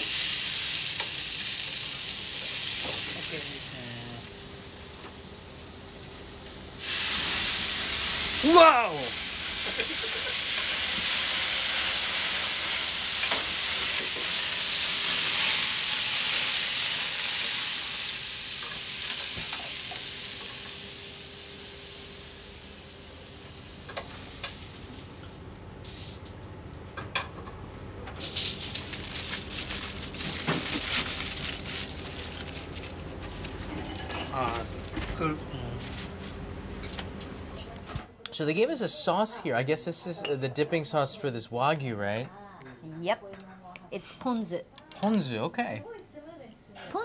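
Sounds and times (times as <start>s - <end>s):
meat sizzling in a frying pan: 0.0s - 25.4s
aluminium foil crinkling: 28.2s - 34.1s, 35.8s - 36.4s.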